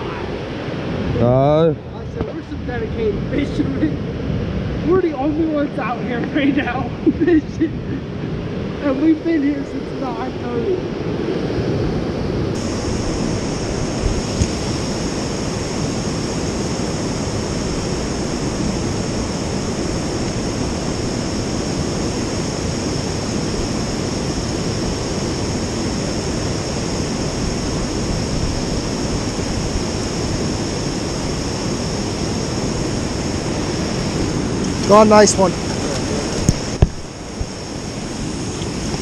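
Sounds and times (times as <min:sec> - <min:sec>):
water rushing over rocks: 0:12.5 - 0:39.0.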